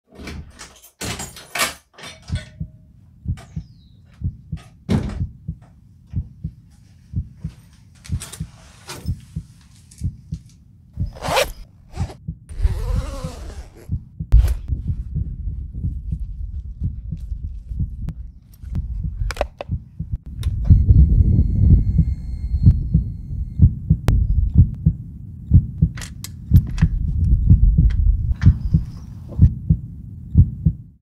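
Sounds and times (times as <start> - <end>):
sharp clicks and knocks: 18.5 - 20.8, 25.8 - 29.5.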